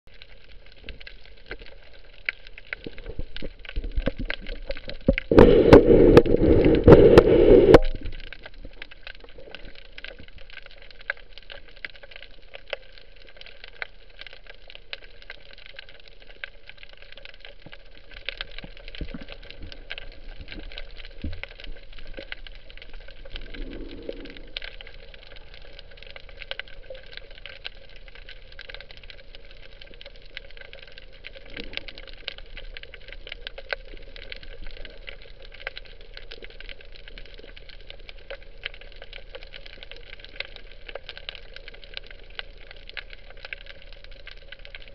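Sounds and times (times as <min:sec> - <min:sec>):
loud underwater rushing: 0:05.3 - 0:08.1.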